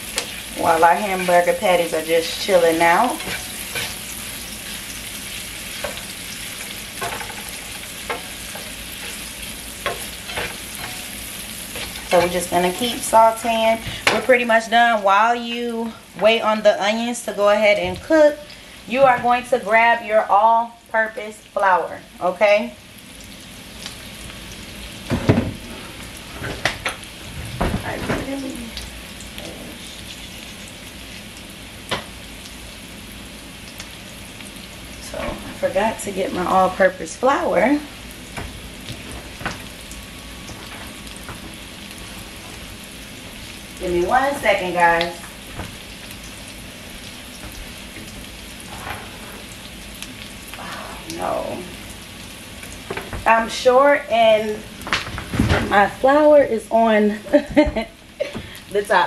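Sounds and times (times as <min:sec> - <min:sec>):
onions sizzling in a pan: 0:00.0 - 0:59.0
utensil scraping a pan: 0:02.0 - 0:05.0, 0:05.6 - 0:14.3.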